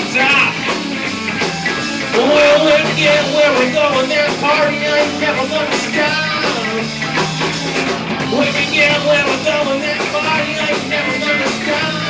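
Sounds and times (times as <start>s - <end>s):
bass guitar: 0.0s - 12.0s
drums: 0.0s - 12.0s
electric guitars: 0.0s - 12.0s
man singing into a microphone: 2.1s - 6.9s, 8.3s - 12.0s.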